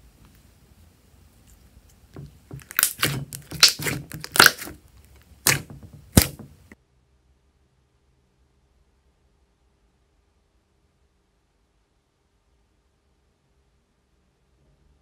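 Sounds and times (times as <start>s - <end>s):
air popping from slime: 2.2s - 4.8s, 5.4s - 6.8s
slime squeezed and stretched: 2.2s - 4.8s, 5.4s - 6.6s.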